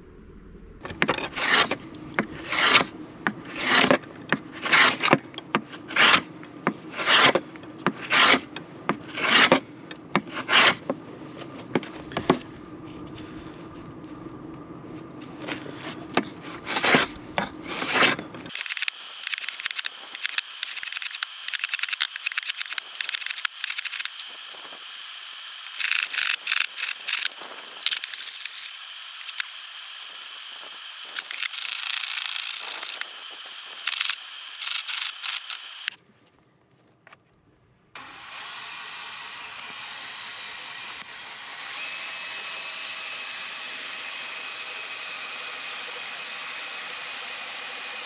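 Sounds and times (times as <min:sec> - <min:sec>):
hand plane shaving wood: 0:01.0 - 0:09.6, 0:10.2 - 0:11.0, 0:15.5 - 0:25.0, 0:25.6 - 0:29.5.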